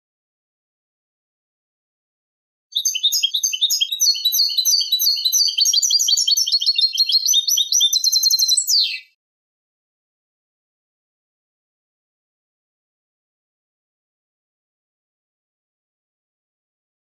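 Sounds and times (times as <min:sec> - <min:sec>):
goldfinch chirping and trilling: 0:02.8 - 0:09.1.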